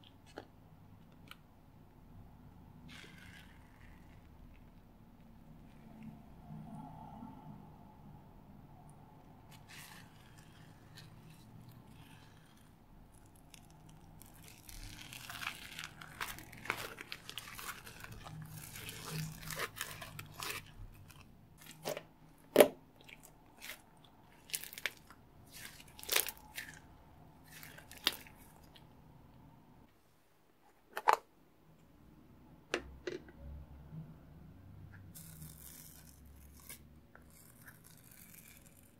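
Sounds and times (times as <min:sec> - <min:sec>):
slime crackling: 0:09.5 - 0:28.9.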